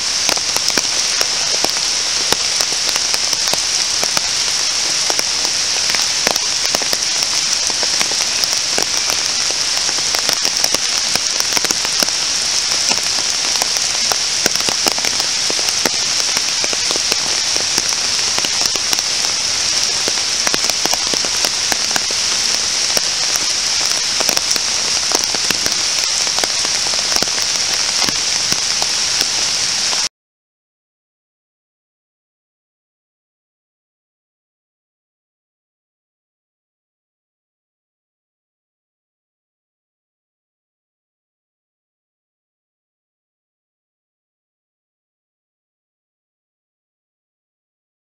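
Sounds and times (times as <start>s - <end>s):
steady rain falling on trees: 0.0s - 30.1s.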